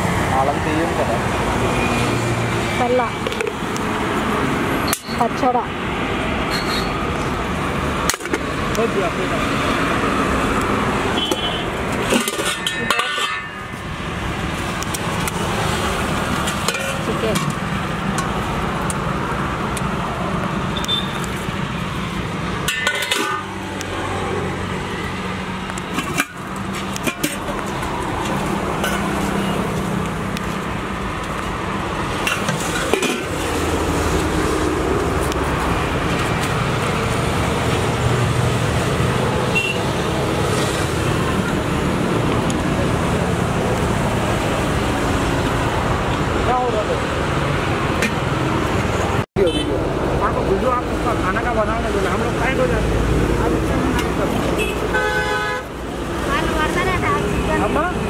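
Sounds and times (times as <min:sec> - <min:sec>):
roadside traffic: 0:00.0 - 0:58.0
steel pots and spoons clinking: 0:06.5 - 0:07.0, 0:11.9 - 0:13.9, 0:16.4 - 0:18.4, 0:22.6 - 0:23.6, 0:25.9 - 0:29.2, 0:32.1 - 0:33.6.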